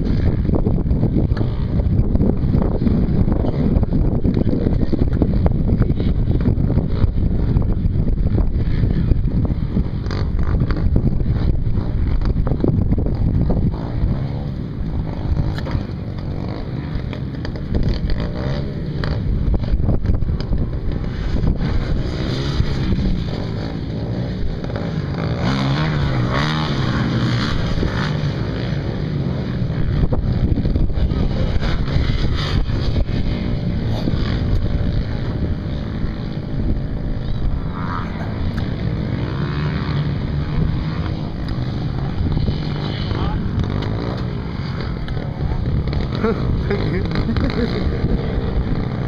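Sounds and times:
dirt bike engines revving: 0.0s - 49.0s
wind buffeting microphone: 0.0s - 49.0s.

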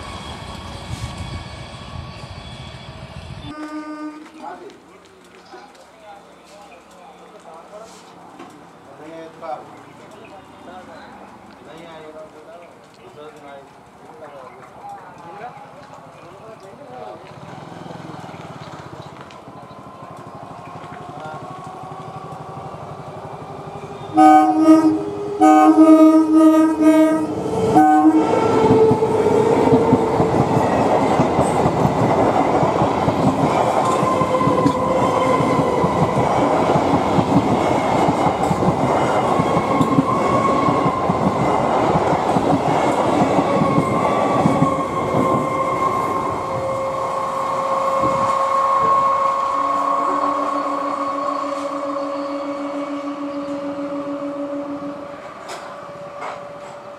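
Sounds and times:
train rumble and wheel clatter: 0.0s - 56.9s
train horn blasts: 3.4s - 4.6s, 24.0s - 29.4s, 45.2s - 56.9s.

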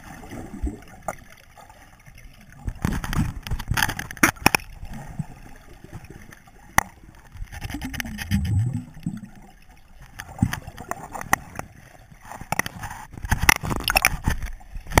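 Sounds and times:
water sloshing and gurgling: 0.0s - 15.0s
sharp clicks and knocks: 2.7s - 4.7s, 6.8s - 8.8s, 12.3s - 15.0s
muffled gurgling rumble: 7.2s - 9.7s.

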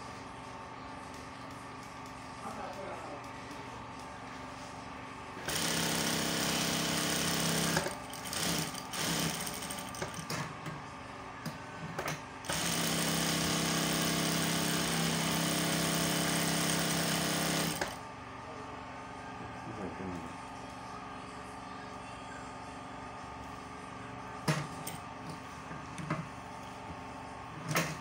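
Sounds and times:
industrial sewing machine stitching: 5.4s - 10.1s, 12.5s - 18.0s.

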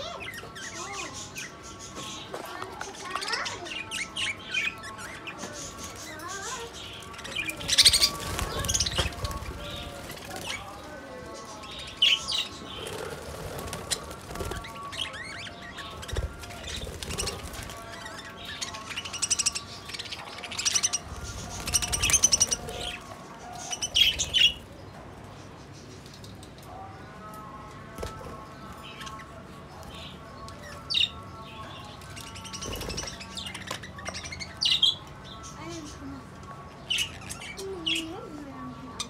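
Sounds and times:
budgerigars warbling and chattering: 0.0s - 26.4s, 28.1s - 39.0s
wings flapping: 7.5s - 10.9s, 12.6s - 18.2s, 20.9s - 23.0s.

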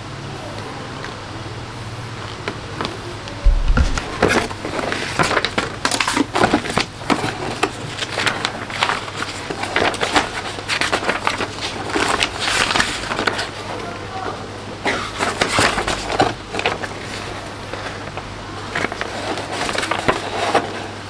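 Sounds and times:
dull thump: 3.4s - 4.3s
paper rustling and crinkling: 3.5s - 13.8s, 15.2s - 20.9s.

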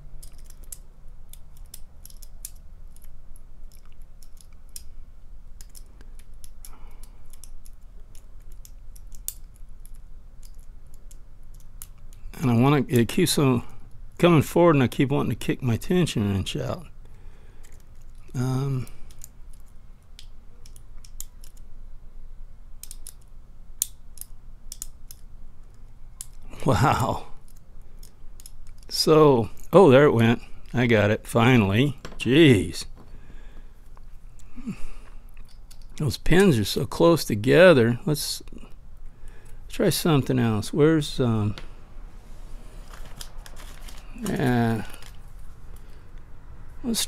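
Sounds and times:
lock pick metallic clicks: 0.2s - 5.0s, 5.6s - 12.2s, 19.0s - 21.7s, 22.8s - 26.4s, 27.4s - 28.9s, 35.3s - 36.0s.

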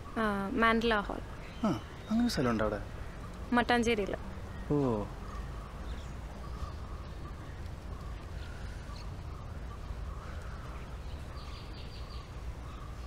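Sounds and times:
low outdoor rumble: 0.0s - 13.0s
crows cawing: 8.4s - 11.3s.

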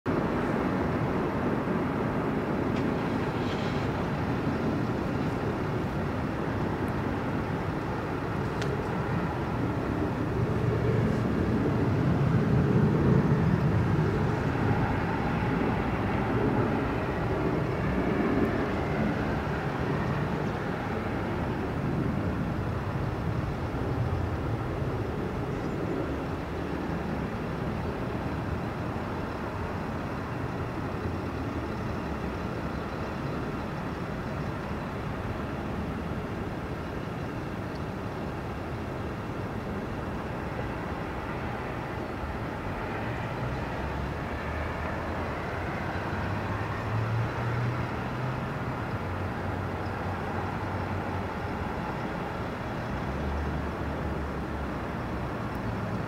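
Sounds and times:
low outdoor rumble: 0.1s - 56.0s.

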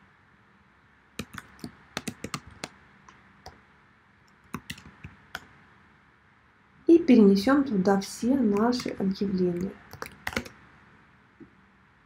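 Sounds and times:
typing on computer keyboard: 1.2s - 2.7s, 4.4s - 5.5s, 8.5s - 10.6s.

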